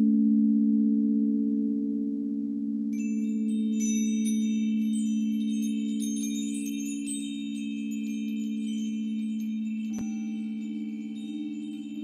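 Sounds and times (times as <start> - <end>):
singing bowls humming: 0.1 - 12.0
metal chimes tinkling: 3.0 - 12.0.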